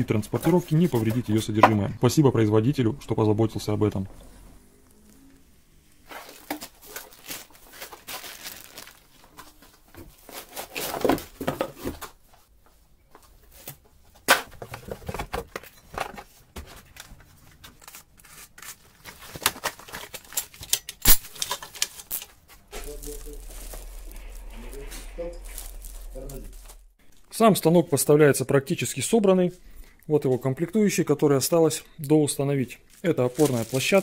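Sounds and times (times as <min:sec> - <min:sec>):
plastic wrap crinkling and tearing: 0:05.2 - 0:11.2, 0:17.8 - 0:26.8, 0:32.8 - 0:34.0
cardboard packaging shifting: 0:06.0 - 0:11.4, 0:32.9 - 0:34.0.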